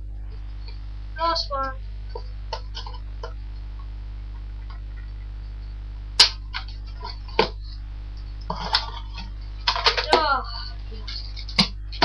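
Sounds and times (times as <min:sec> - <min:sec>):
sharp snaps and clicks: 0:06.2 - 0:06.8.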